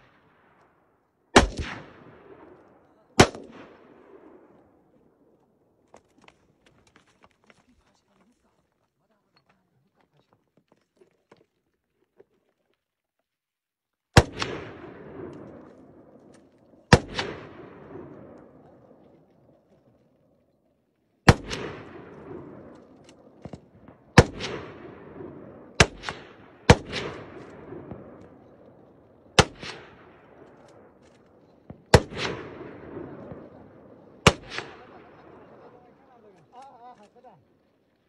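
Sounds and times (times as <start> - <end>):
rifle shots echoing: 0.0 - 5.5, 14.2 - 20.0, 21.2 - 37.8.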